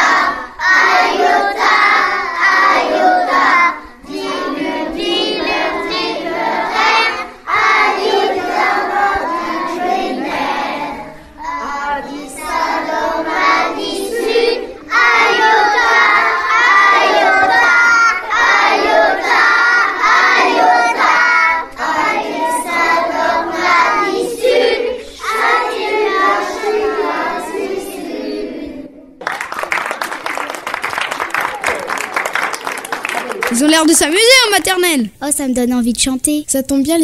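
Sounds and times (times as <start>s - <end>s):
young children singing together: 0.0s - 29.2s.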